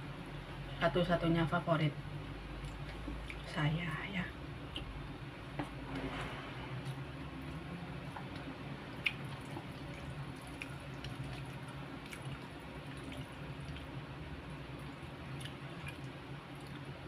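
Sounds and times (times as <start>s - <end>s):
steady low hum: 0.0s - 17.0s
wet mouth and hand noises: 8.2s - 13.9s.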